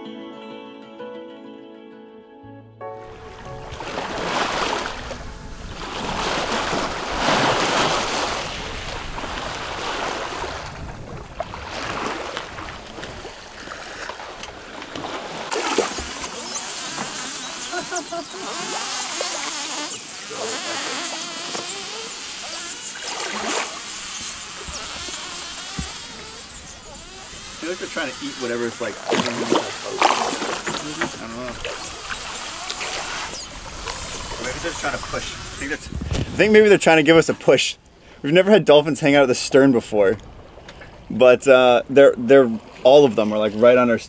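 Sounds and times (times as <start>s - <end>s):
water splashing along hull: 3.0s - 37.6s, 39.8s - 41.3s, 42.2s - 44.0s
wind on microphone: 3.1s - 36.7s.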